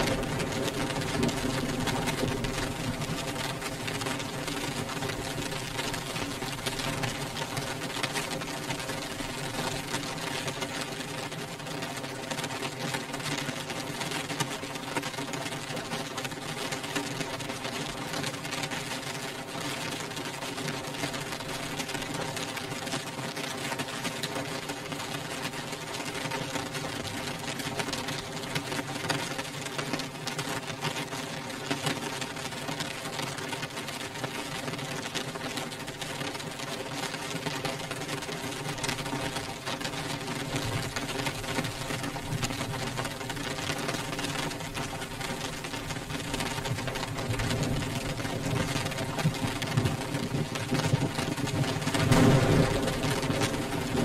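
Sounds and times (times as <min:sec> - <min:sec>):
rain pattering on window glass: 0:00.0 - 0:54.0.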